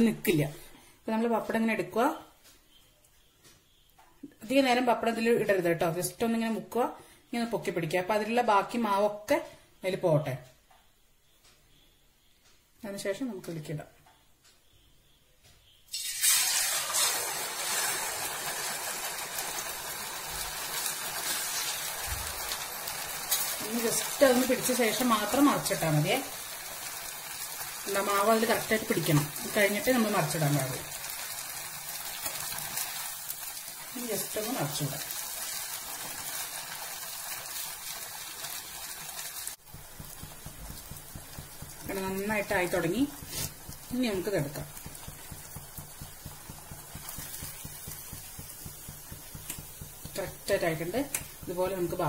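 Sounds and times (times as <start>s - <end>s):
oil sizzling: 15.9s - 52.0s.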